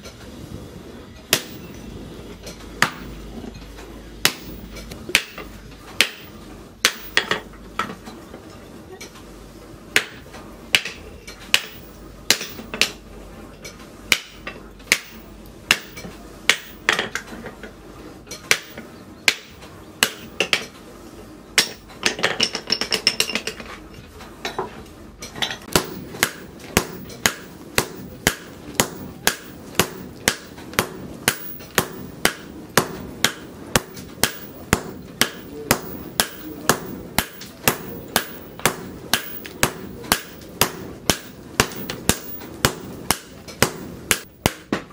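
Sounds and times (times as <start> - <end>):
hammer striking steel on anvil: 1.3 - 1.9, 4.2 - 7.9, 10.0 - 13.0, 14.1 - 17.2, 18.5 - 20.6, 21.6 - 23.6, 25.6 - 44.8.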